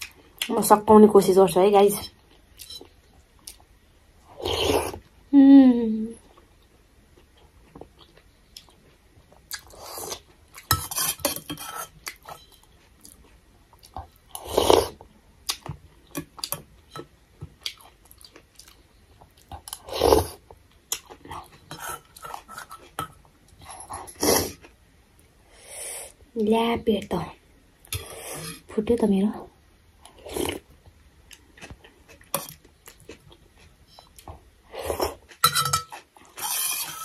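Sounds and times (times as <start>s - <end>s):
chewing: 17.6s - 24.7s.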